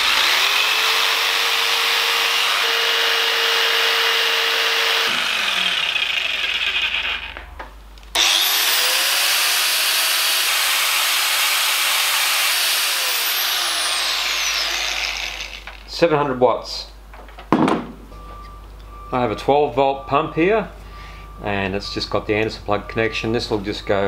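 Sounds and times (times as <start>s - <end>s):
electric jigsaw motor whine: 0.0s - 7.4s, 8.2s - 15.8s
angle grinder whine: 0.0s - 16.0s.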